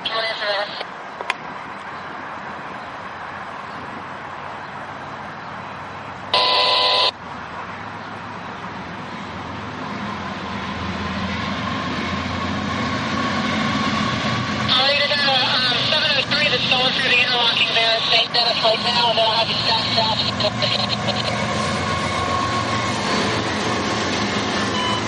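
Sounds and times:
locomotive engine rumble: 0:09.2 - 0:25.0.

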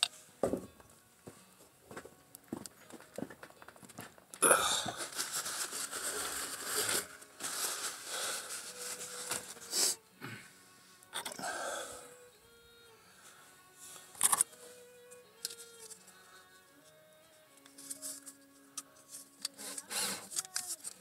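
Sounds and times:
applicator rubbing on plastic pipe: 0:19.2 - 0:20.7.

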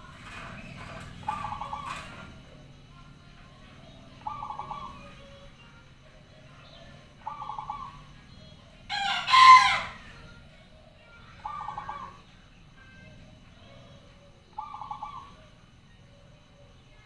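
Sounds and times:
dove cooing: 0:00.0 - 0:17.0
rooster crowing: 0:08.9 - 0:10.2.

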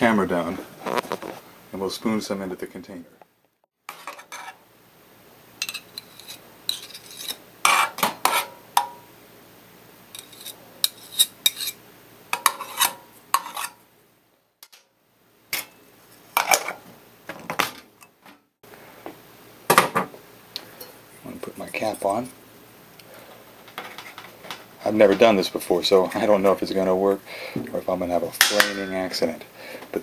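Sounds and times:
metal spoon scraping inside tin can: 0:03.9 - 0:04.6, 0:05.6 - 0:08.6, 0:10.2 - 0:11.8, 0:12.4 - 0:13.8.

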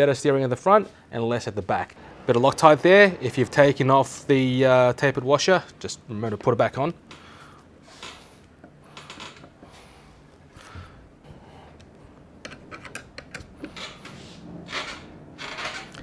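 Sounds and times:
metal scraping rubs: 0:01.9 - 0:05.9.

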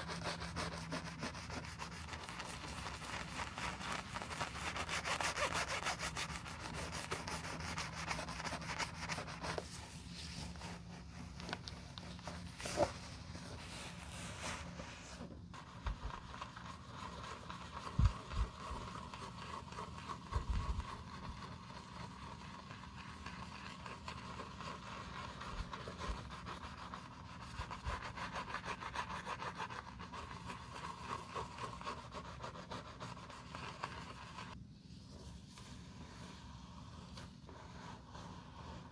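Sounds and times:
shoe brush scrubbing leather: 0:00.0 - 0:09.7, 0:15.6 - 0:34.6.

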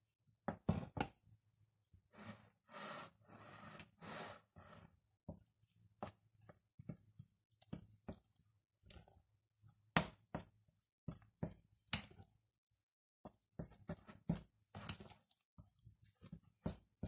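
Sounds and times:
fork scraping through dough: 0:02.1 - 0:05.0.

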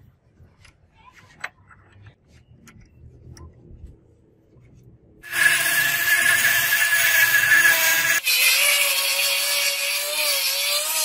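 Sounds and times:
rotary tool grinding whine: 0:05.2 - 0:11.0.

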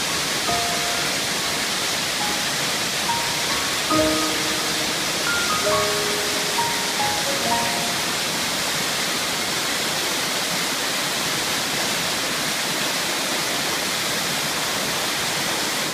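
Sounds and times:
waterfall rushing: 0:00.0 - 0:15.9
background music: 0:00.4 - 0:08.6.

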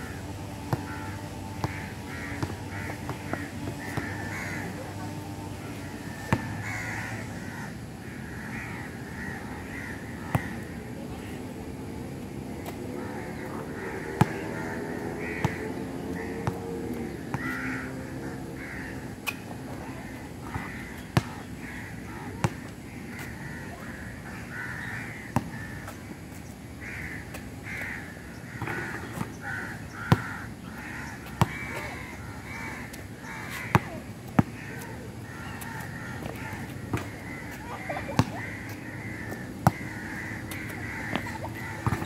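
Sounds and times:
crows cawing: 0:00.0 - 0:05.2, 0:05.9 - 0:10.6, 0:12.9 - 0:19.1, 0:19.8 - 0:26.0, 0:26.8 - 0:42.0
basketball bouncing on concrete: 0:02.4 - 0:04.2, 0:31.2 - 0:31.8, 0:33.7 - 0:34.9, 0:38.1 - 0:38.4, 0:39.6 - 0:39.9, 0:40.7 - 0:42.0.

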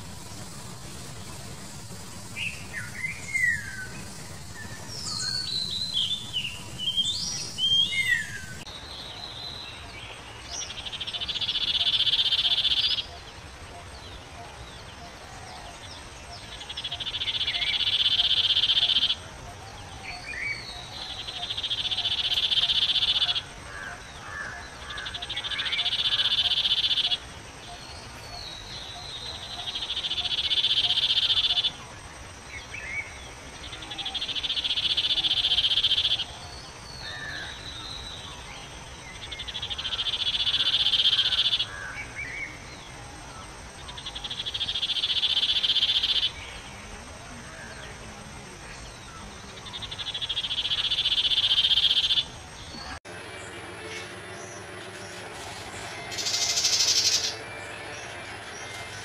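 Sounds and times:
bird buzzing trill: 0:00.0 - 0:08.7, 0:53.9 - 0:57.9.

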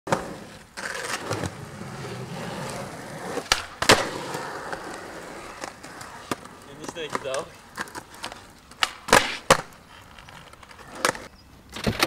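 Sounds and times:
skateboard wheels rolling on concrete: 0:00.1 - 0:12.0
skateboard clacks: 0:02.6 - 0:12.0.

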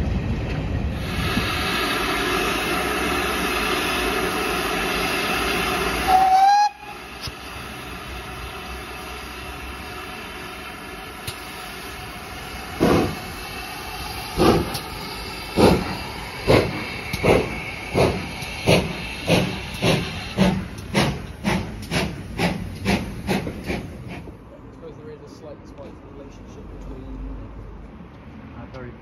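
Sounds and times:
steam locomotive exhaust beats: 0:00.0 - 0:24.9
steam hissing: 0:00.9 - 0:24.4.

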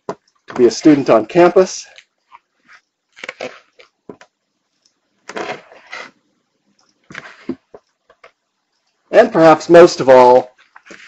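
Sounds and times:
booklet pages flipping: 0:01.9 - 0:04.3, 0:07.0 - 0:08.3, 0:10.5 - 0:11.0.

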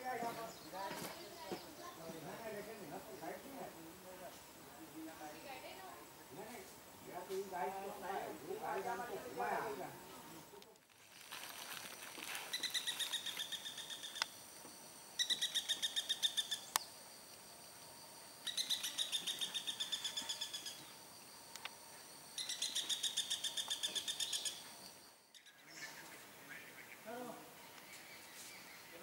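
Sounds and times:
woodpecker rattling call: 0:12.5 - 0:14.4, 0:15.2 - 0:16.8, 0:18.4 - 0:21.0, 0:22.4 - 0:24.7, 0:25.3 - 0:25.9.

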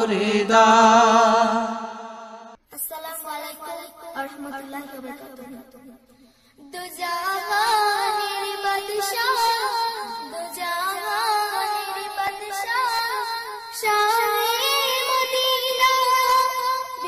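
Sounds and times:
high voice singing: 0:06.6 - 0:17.0.

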